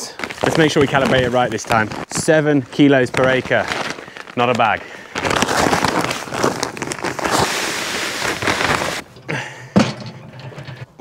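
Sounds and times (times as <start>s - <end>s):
soft rustling: 0.1s - 9.0s
seeds pouring crackling patter: 2.5s - 9.0s.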